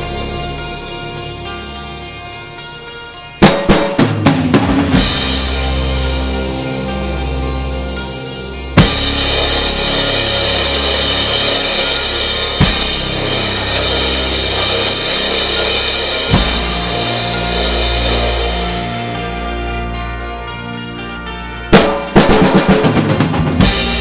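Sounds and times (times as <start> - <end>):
recorded rock track with bass: 0.0 - 24.0
practice drum kit playing: 3.3 - 20.6, 21.7 - 24.0
crash cymbal accents: 4.8 - 7.6, 8.3 - 20.5.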